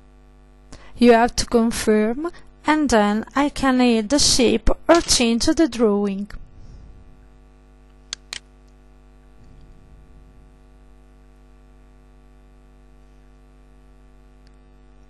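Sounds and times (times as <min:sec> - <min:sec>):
electrical mains hum: 0:00.0 - 0:15.0
computer mouse clicks: 0:08.0 - 0:08.8.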